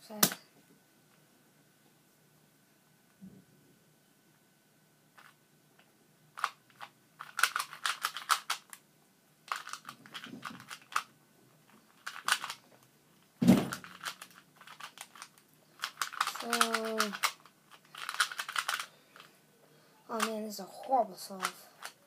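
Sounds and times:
plastic puzzle cube clicking turns: 6.4s - 8.8s, 9.5s - 11.1s, 11.7s - 12.6s, 13.7s - 19.3s, 20.1s - 20.4s, 21.4s - 22.0s.

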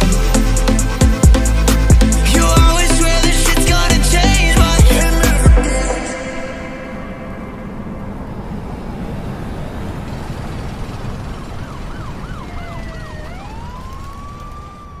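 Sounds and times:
low rumble: 0.0s - 11.6s
dense rushing noise: 0.0s - 12.8s
siren yelp and wail: 6.0s - 15.0s.

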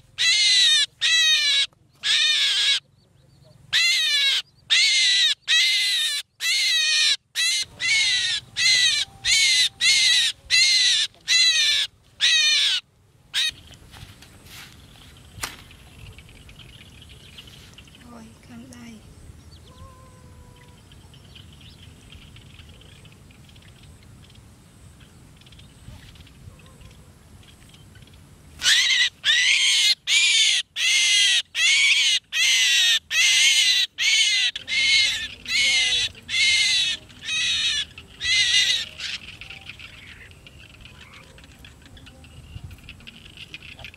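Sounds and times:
bird harsh distress calls: 0.0s - 3.0s, 3.6s - 13.6s, 28.6s - 42.1s.

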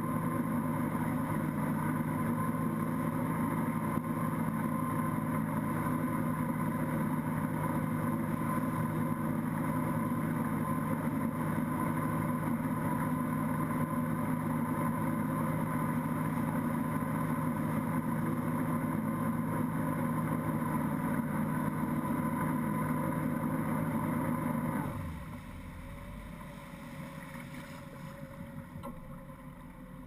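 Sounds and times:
boat engine running: 0.0s - 30.0s
wake churning: 26.4s - 28.6s.

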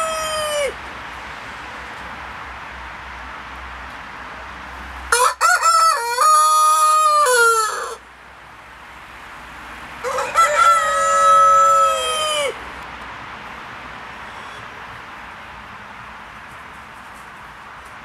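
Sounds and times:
rooster crowing: 0.0s - 0.8s, 5.1s - 8.0s, 10.0s - 12.6s.

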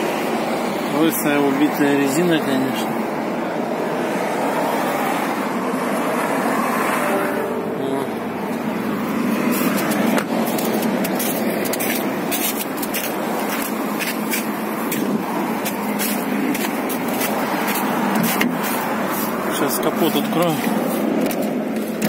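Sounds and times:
steady rushing background noise: 0.0s - 22.0s
footsteps crunching on icy snow: 9.0s - 22.0s.

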